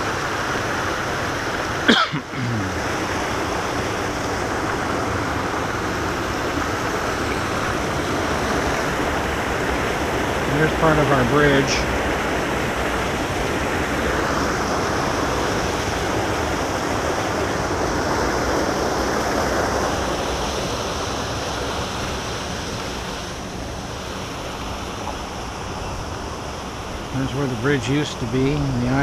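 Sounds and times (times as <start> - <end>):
floodwater rushing through drain: 0.0 - 29.0.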